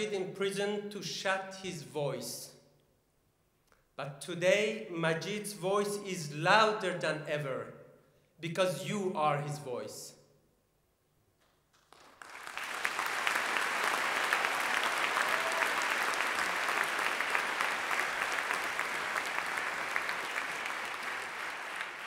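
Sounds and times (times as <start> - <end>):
audience applauding: 11.8 - 22.0.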